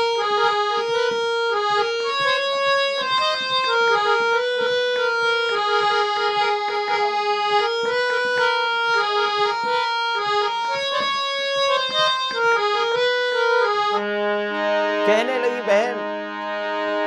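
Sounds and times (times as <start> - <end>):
harmonium playing: 0.0 - 17.0
man singing: 15.0 - 16.2.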